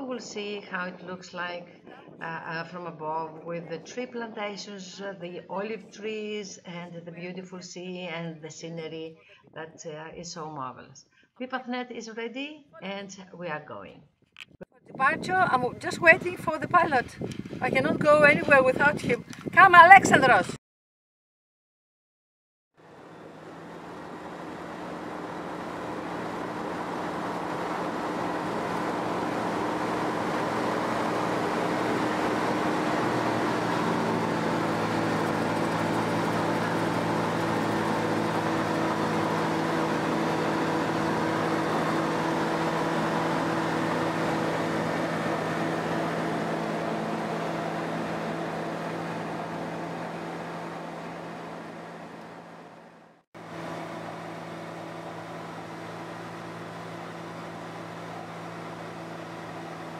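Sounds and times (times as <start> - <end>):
light aircraft engine and propeller: 22.8 - 59.9.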